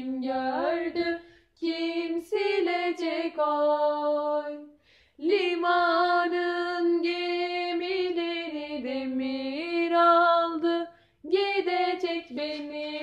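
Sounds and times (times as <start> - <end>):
person singing unaccompanied: 0.0 - 4.6.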